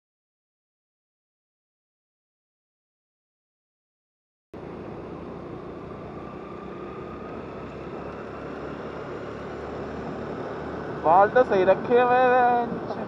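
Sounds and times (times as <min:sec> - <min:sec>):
motorcycle engine: 0:04.6 - 0:13.0
wind: 0:04.6 - 0:13.0.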